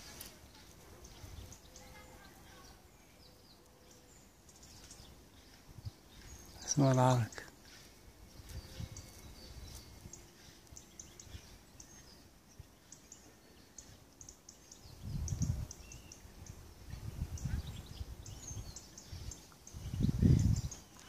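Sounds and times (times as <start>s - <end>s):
low rumbling on microphone: 14.8s - 15.8s, 16.8s - 20.8s.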